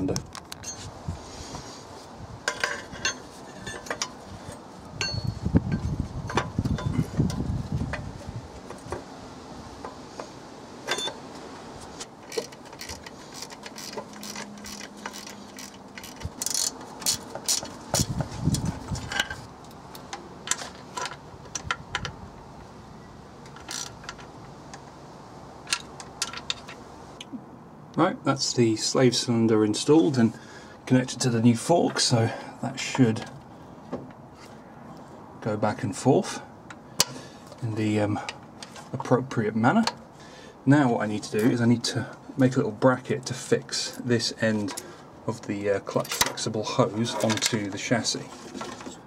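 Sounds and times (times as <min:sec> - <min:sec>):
tools and metal parts clinking: 0:00.2 - 0:00.9, 0:02.4 - 0:08.0, 0:10.9 - 0:11.2, 0:12.0 - 0:22.2, 0:23.4 - 0:24.8, 0:25.6 - 0:26.8, 0:45.8 - 0:49.0.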